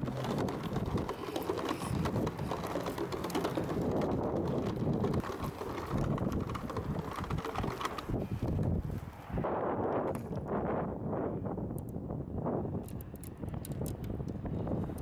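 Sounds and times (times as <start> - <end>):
cooler wheels rattling over planks: 0.0 - 8.6
footsteps on wooden planks: 0.0 - 9.2
wind buffeting microphone: 0.0 - 15.0.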